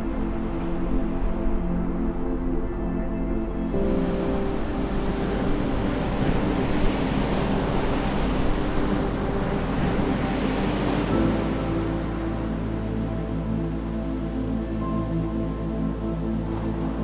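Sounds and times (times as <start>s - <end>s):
music: 0.0s - 17.0s
waves breaking: 3.7s - 13.4s.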